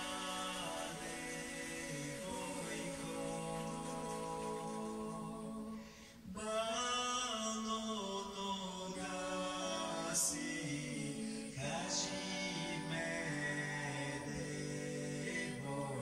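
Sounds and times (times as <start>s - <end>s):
man singing long notes: 0.0s - 5.8s
soft musical backing: 0.0s - 16.0s.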